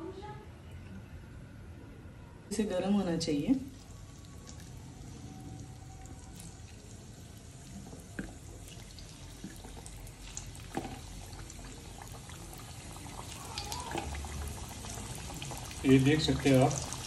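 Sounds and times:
oil bubbling and sizzling: 3.6 - 17.0
oil crackles: 3.7 - 17.0.

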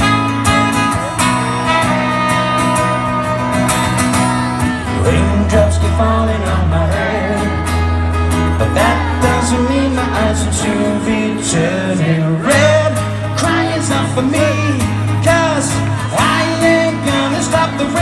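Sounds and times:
trumpet melody: 0.0 - 5.0
acoustic guitar strumming: 0.0 - 18.0
person singing: 8.6 - 18.0.

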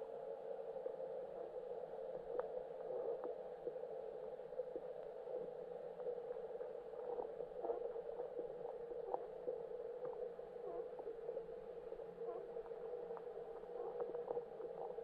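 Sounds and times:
steady underwater hum: 0.0 - 15.0
faint underwater clicks and ticks: 0.2 - 15.0.

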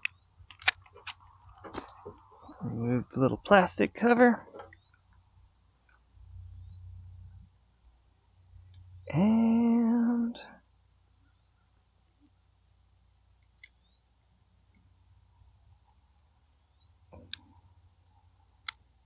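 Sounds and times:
crickets chirring: 0.0 - 19.0
person speaking: 2.5 - 4.6, 9.1 - 10.5.

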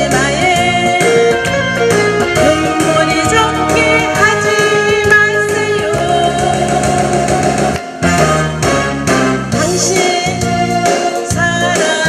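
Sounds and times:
woman singing: 0.0 - 7.4, 8.0 - 8.9, 9.5 - 12.0
instrumental backing track: 0.0 - 12.0.

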